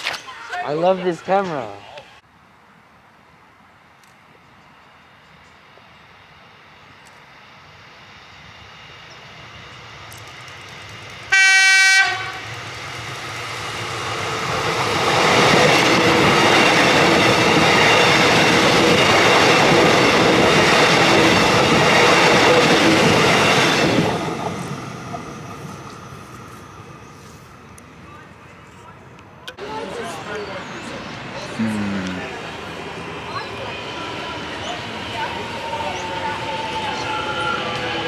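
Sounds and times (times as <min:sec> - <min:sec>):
train passing close by: 0:03.3 - 0:38.0
train horn blast: 0:11.3 - 0:12.5.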